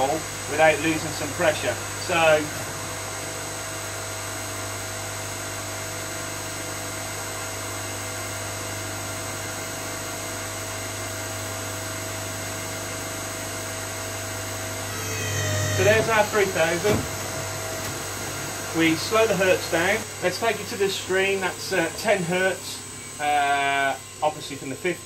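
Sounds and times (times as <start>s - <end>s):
pump whine: 0.0s - 25.0s
electric motor hum: 13.8s - 24.3s.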